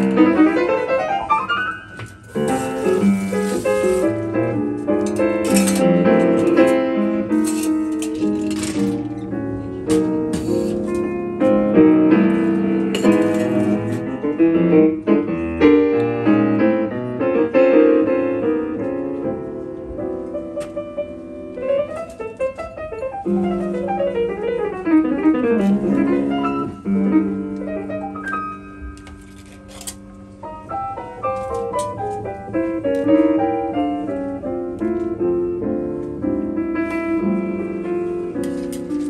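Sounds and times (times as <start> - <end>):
jazz grand piano: 0.0 - 39.0.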